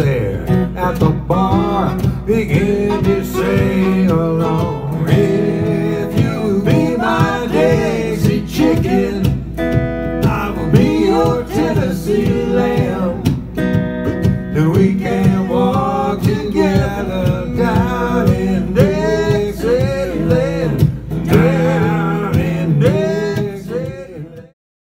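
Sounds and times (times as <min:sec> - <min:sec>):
strummed acoustic guitar: 0:00.0 - 0:24.5.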